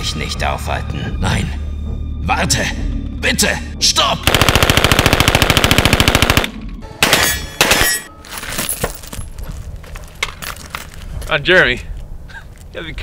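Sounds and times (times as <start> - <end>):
submachine gun full-auto burst: 4.2 - 6.5.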